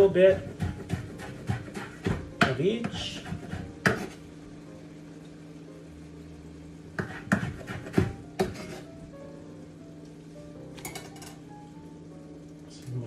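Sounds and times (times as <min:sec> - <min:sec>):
steady low hum: 0:00.0 - 0:13.0
sharp knocks on cookware: 0:00.6 - 0:04.1, 0:07.0 - 0:08.8.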